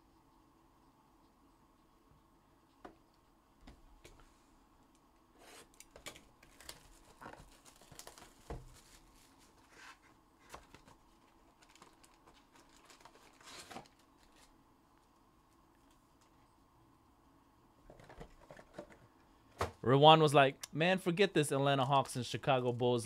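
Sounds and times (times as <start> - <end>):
plastic wrapping crinkling and tearing: 5.8 - 9.7, 10.4 - 14.5.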